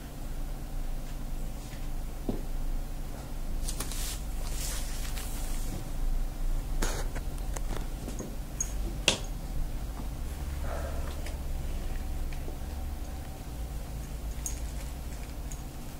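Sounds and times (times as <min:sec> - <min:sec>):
steady low hum: 0:00.0 - 0:15.9
ink brush swishing on paper: 0:03.9 - 0:05.8.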